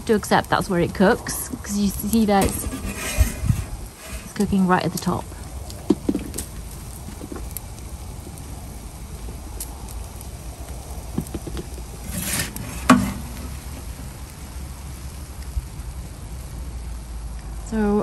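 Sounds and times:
gas burner roaring: 0.0 - 18.0
pizza peel scraping: 1.7 - 5.1, 11.2 - 14.0
metal clack: 12.1 - 13.7.

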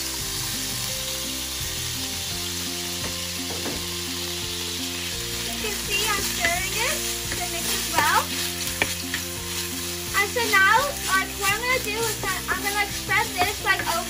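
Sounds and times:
garlic sizzling in butter: 0.0 - 14.0
utensil stirring in pan: 3.4 - 14.0.

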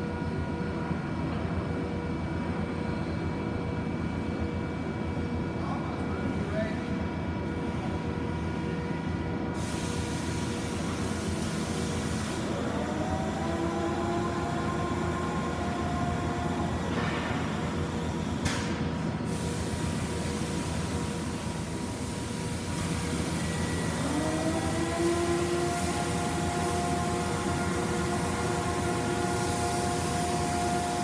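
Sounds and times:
machine hum and rumble: 0.0 - 31.0
machine whine: 8.6 - 31.0.

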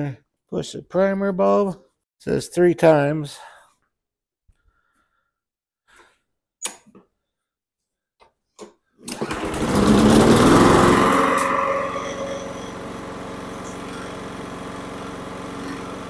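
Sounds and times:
recoil starter pull: 9.0 - 15.6
lawn mower engine running: 9.1 - 16.0.

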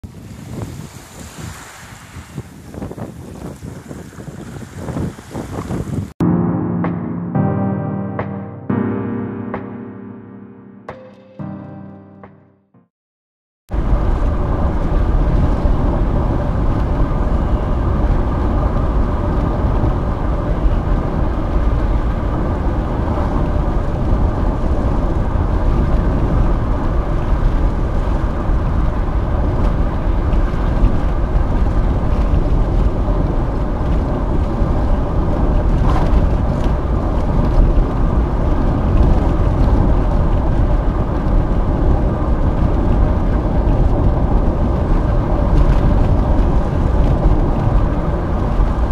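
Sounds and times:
tyres rumbling on road: 13.7 - 48.9.

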